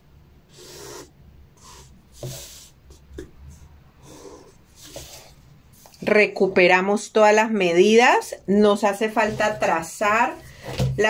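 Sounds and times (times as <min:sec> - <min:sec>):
marker scratching on paper: 0:00.5 - 0:03.3.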